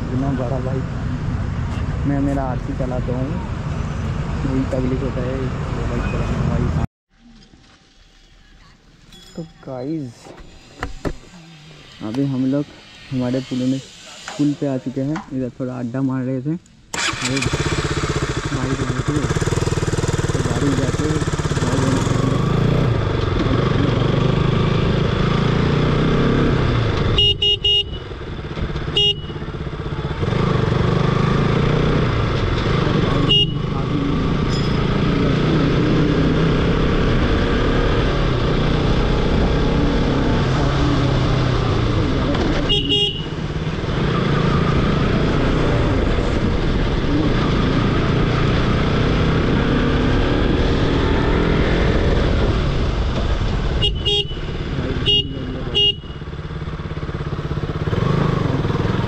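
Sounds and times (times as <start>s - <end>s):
road and wind noise: 0.0s - 59.0s
motorcycle engine running: 17.0s - 59.0s
horn beeping: 27.0s - 29.8s, 32.9s - 35.1s, 42.6s - 44.7s, 53.8s - 56.4s.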